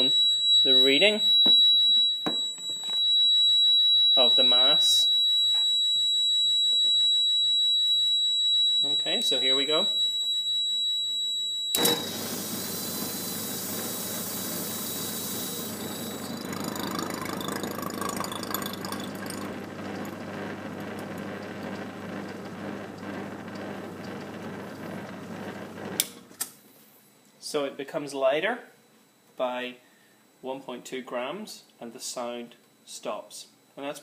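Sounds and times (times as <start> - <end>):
electronic buzzer tone: 0.0 - 23.6
vacuum pump humming: 11.8 - 26.4.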